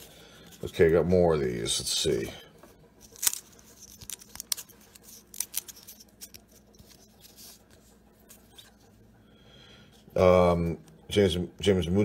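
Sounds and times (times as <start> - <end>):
cards clicking and snapping: 3.0 - 7.0.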